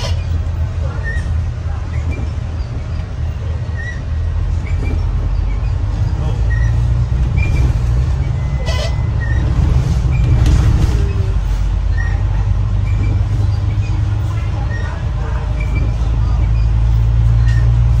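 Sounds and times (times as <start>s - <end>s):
rumble of passing vehicles: 0.0s - 18.0s.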